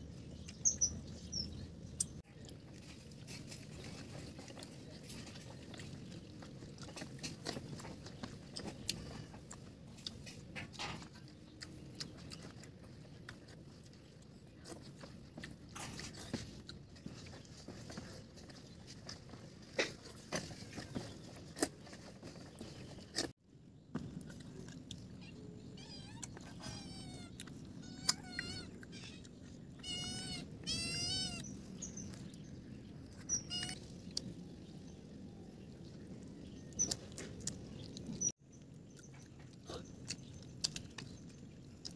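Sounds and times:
chewing smacks and clicks: 0:02.0 - 0:23.3, 0:24.0 - 0:30.2, 0:32.0 - 0:34.4, 0:36.2 - 0:41.9
animal wavering calls: 0:25.2 - 0:31.6.

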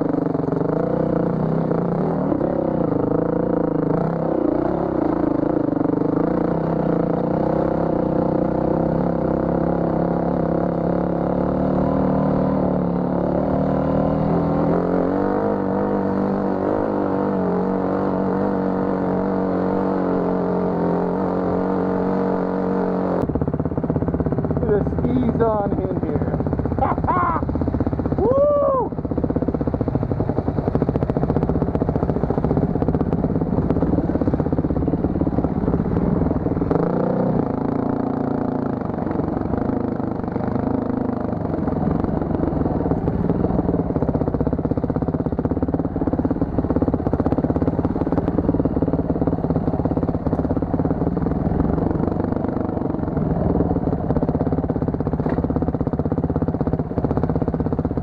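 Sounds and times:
dirt bike engine revving: 0:00.0 - 0:23.2, 0:24.4 - 0:28.9, 0:32.2 - 0:43.4.

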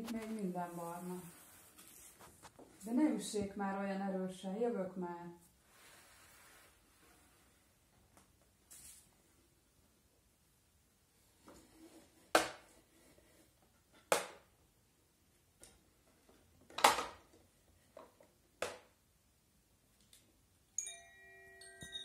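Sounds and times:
chiming tune: 0:20.8 - 0:22.0.

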